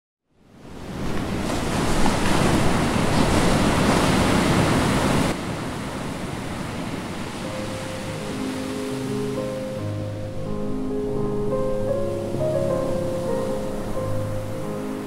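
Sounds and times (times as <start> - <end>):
waves breaking: 0.6 - 15.0
soft music notes: 7.4 - 15.0.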